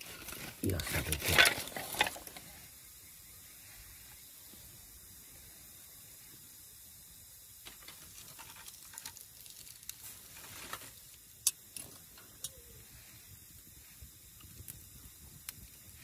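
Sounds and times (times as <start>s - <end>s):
wood fire crackling and popping: 0.0s - 2.4s, 7.6s - 12.7s, 13.3s - 16.0s
faint hiss of fire: 0.0s - 16.0s.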